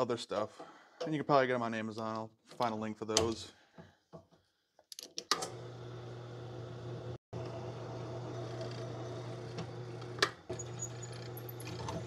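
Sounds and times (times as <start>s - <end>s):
drill press humming: 5.5s - 12.0s.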